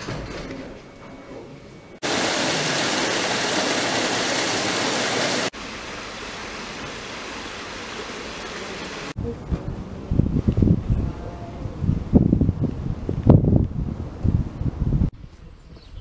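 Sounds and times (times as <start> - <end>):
waterfall splashing: 2.0 - 9.2.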